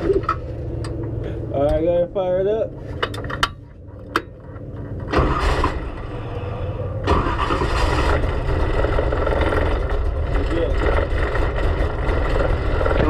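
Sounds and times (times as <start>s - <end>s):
race car engine starting and revving: 4.9s - 13.0s.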